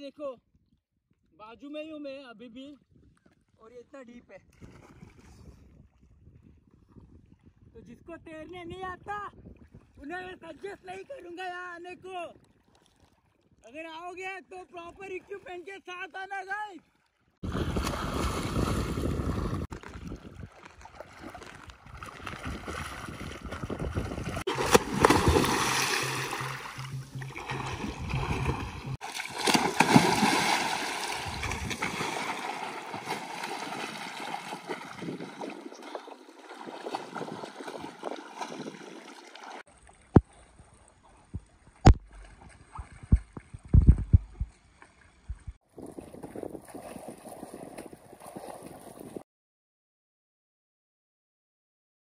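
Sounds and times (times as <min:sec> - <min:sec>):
swimmer splashing water: 0:17.4 - 0:40.7
sharp short splashes or knocks: 0:17.5 - 0:39.6.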